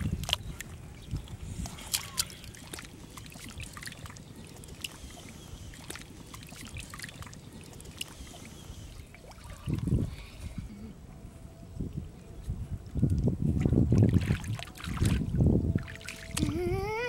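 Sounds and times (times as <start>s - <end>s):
hands patting wet mud: 0.0s - 5.1s
water sloshing: 0.0s - 10.5s, 12.9s - 16.8s
short wet clicks: 1.6s - 5.1s.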